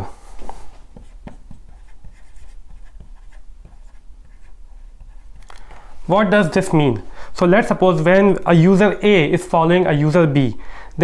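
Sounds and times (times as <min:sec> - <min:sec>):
marker writing on whiteboard: 0:00.9 - 0:05.5.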